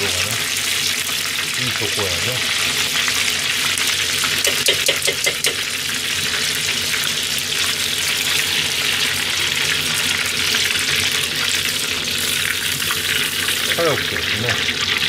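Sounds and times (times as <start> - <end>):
oil sizzling: 0.0 - 15.0
utensils tapping pot: 4.4 - 5.7.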